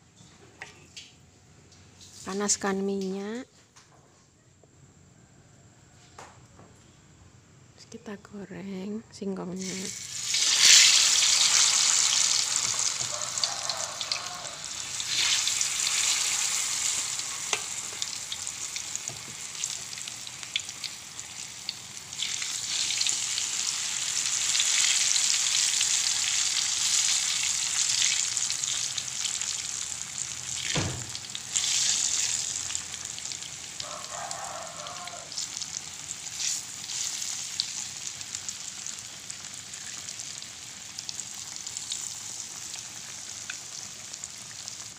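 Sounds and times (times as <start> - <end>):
food deep-frying in oil: 9.6 - 44.9.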